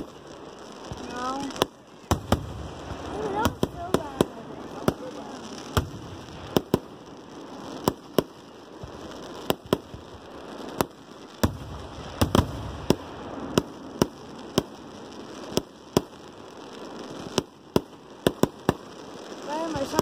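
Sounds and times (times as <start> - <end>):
fireworks bangs: 0.0 - 20.0
deep rumbling firework burst: 0.8 - 15.0.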